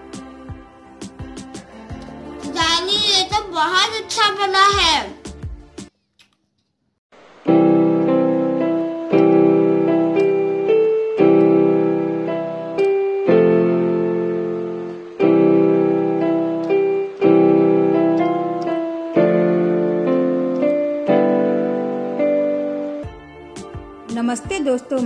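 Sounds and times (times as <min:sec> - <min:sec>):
slow piano tune: 0:07.2 - 0:25.0.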